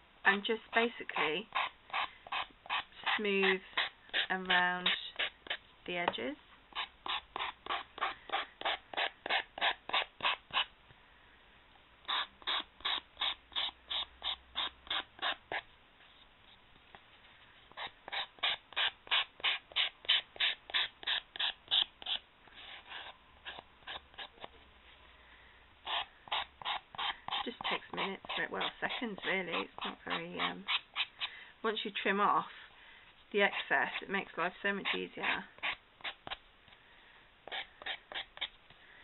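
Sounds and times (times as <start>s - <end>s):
file rasping on chipboard: 1.2s - 5.6s, 6.8s - 10.7s, 12.0s - 15.6s, 17.7s - 24.5s, 25.9s - 31.2s, 37.4s - 38.5s.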